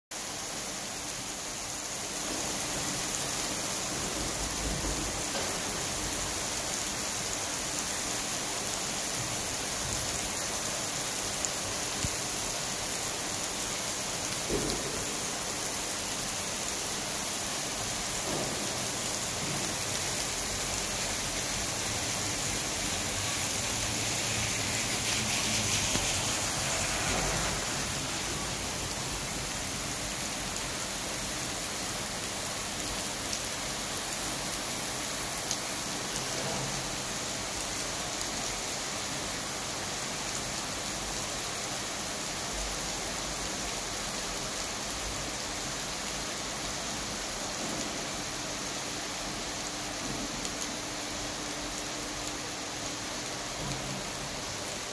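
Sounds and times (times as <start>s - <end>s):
rain falling on paved road: 0.1s - 54.9s.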